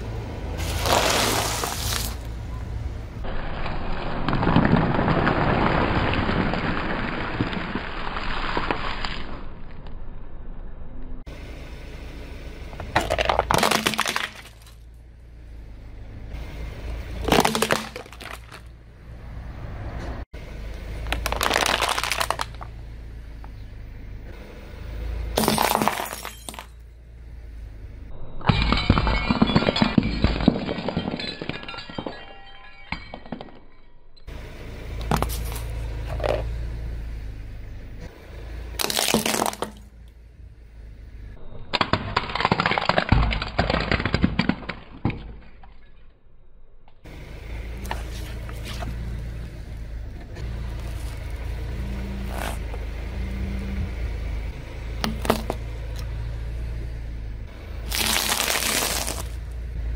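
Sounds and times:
car engine rumble: 0.0 - 59.9
plastic toys crushed by car tyre: 0.6 - 2.3, 3.3 - 9.5, 12.8 - 14.8, 17.2 - 18.7, 21.0 - 22.7, 25.4 - 26.8, 28.5 - 33.7, 38.8 - 40.0, 41.6 - 45.9, 55.0 - 55.6, 57.8 - 59.6.

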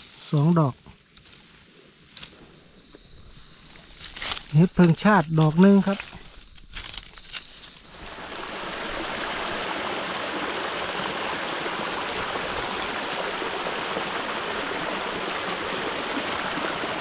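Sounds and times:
flowing water rushing: 7.8 - 17.0.

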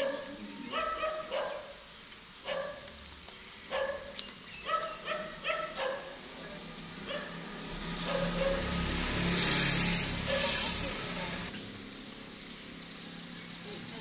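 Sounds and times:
dog barking: 0.0 - 1.8, 2.4 - 2.9, 3.7 - 6.2, 7.1 - 7.4, 8.0 - 8.8, 10.2 - 10.7.

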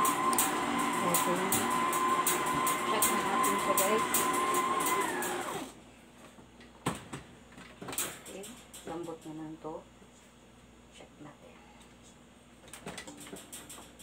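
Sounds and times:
mixer ticking: 0.0 - 5.6
stand mixer motor whining: 0.0 - 5.7.

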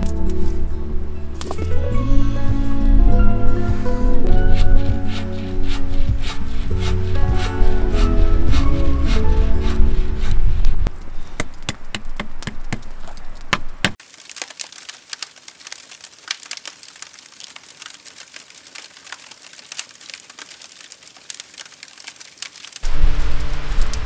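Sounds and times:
wood fire crackling and popping: 10.6 - 24.0.

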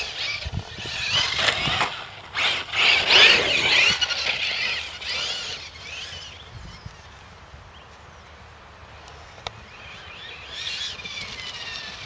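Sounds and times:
rc car motor whining: 0.0 - 7.2, 9.7 - 12.0.

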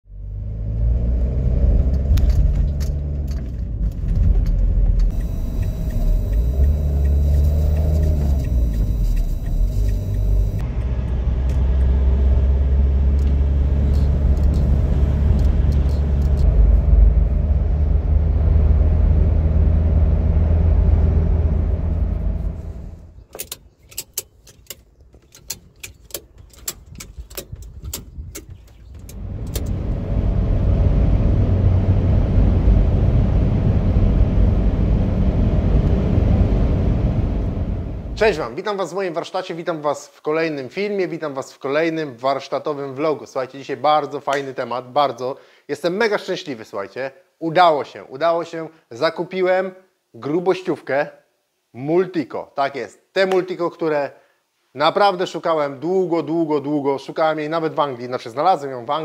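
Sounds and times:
car engine and road rumble: 0.0 - 38.5
sharp clicks: 4.0 - 10.6.

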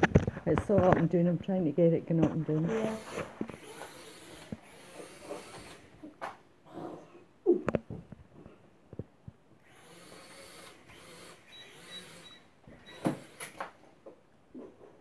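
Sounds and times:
toy drone motors whirring: 2.7 - 6.0, 9.6 - 13.7.

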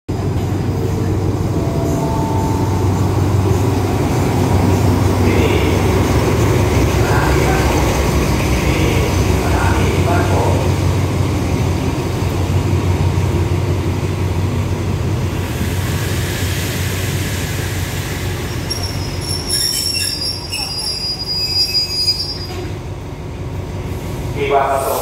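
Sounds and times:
train coaches rumbling past: 0.1 - 25.0
train brakes squealing: 15.5 - 22.8.

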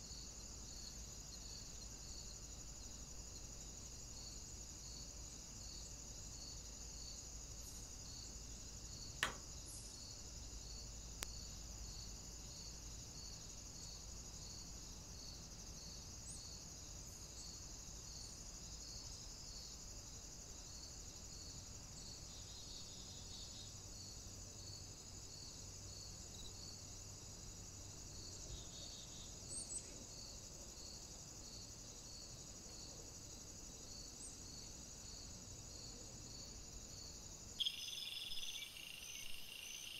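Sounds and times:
sharp click: 9.2 - 9.5
high insect chirring: 37.0 - 39.9.

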